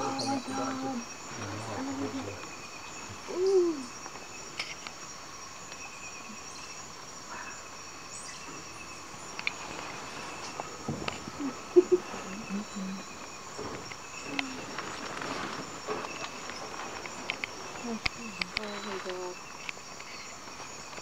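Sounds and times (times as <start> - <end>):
insects chorus: 0.0 - 21.0
faint clicks: 9.3 - 9.6, 16.0 - 20.2.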